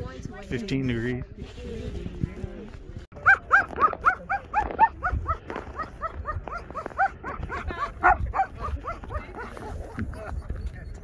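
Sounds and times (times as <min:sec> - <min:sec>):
dogs barking and yipping: 0:03.2 - 0:10.1.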